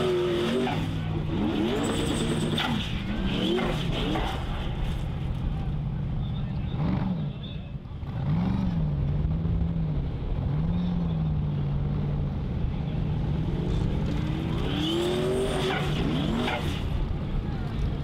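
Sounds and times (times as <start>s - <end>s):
buggy engine revving: 0.0s - 18.0s.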